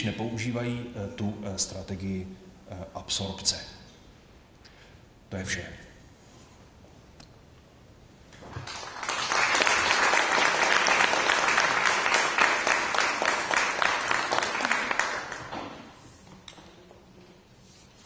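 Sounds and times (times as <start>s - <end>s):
audience applauding: 8.5s - 15.6s.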